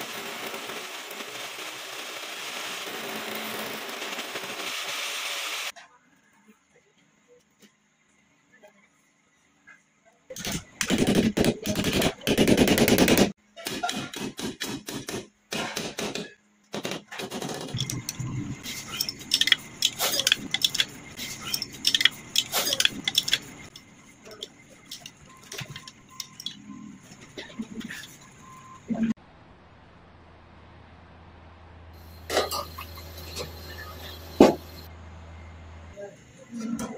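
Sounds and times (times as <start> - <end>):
spanner clinking on bolts: 17.7 - 26.6.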